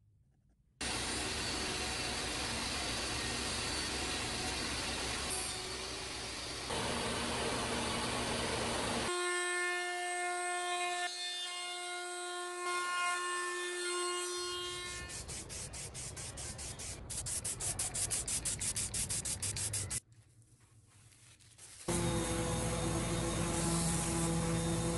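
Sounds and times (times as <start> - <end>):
router whining: 0.8 - 9.1, 21.9 - 24.9
scroll saw cutting wood: 21.9 - 24.9.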